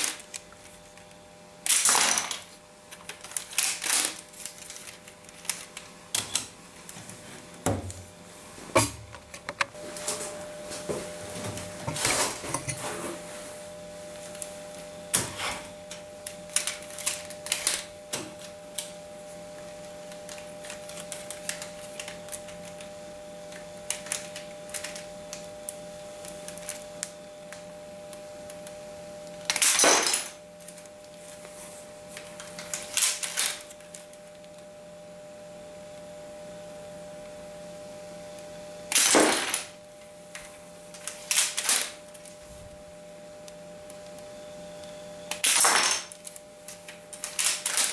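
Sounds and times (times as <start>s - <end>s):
faint steady hum: 0.0s - 47.9s.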